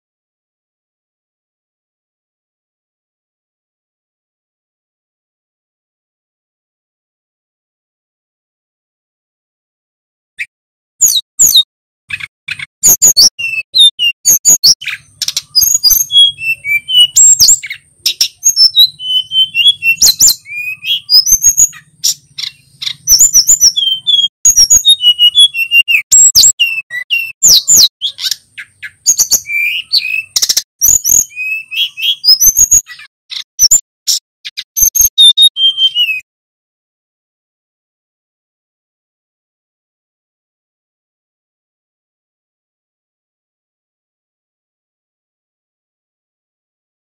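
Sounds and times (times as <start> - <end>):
bird singing whistled song: 11.0 - 36.2.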